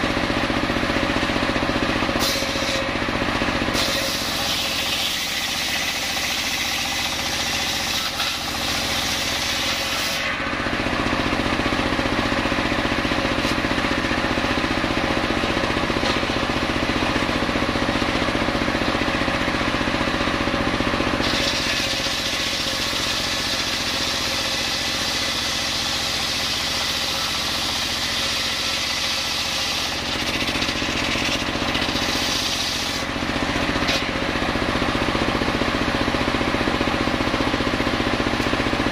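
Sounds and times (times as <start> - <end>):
circular saw ripping through log: 2.1 - 3.1, 3.7 - 11.1, 21.2 - 34.4.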